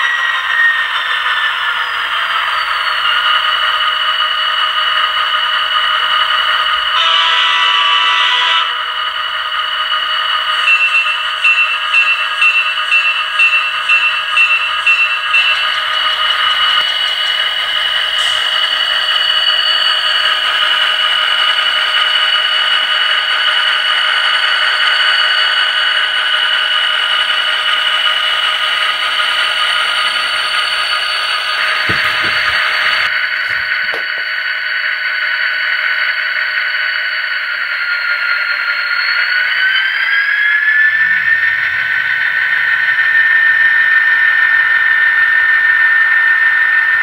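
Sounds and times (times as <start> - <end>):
diesel engine drone: 0.0 - 47.0
locomotive bell ringing: 7.0 - 8.8, 10.5 - 20.2
locomotive horn from small speaker: 7.0 - 8.8.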